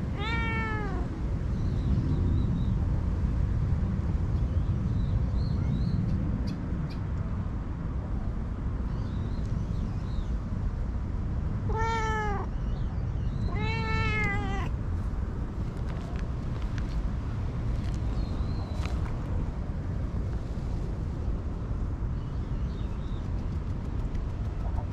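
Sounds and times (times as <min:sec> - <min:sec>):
steady low rumble: 0:00.0 - 0:24.9
cat meowing: 0:00.1 - 0:01.1, 0:11.7 - 0:12.5, 0:13.4 - 0:14.8.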